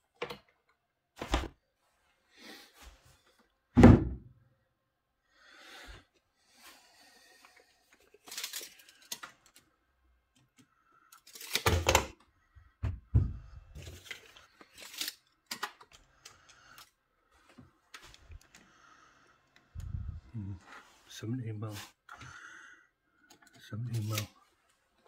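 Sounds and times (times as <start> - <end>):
loud thump: 3.8 - 4.2.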